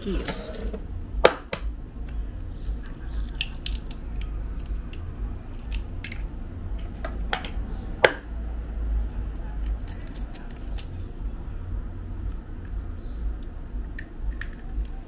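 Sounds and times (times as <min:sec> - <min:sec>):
eggs cracking on bowl rim: 0:02.5 - 0:06.2, 0:13.9 - 0:15.0.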